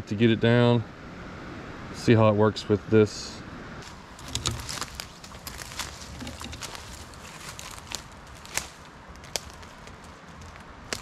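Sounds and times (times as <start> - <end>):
footsteps crunching dry leaves: 3.8 - 11.0
twig snaps: 3.8 - 11.0.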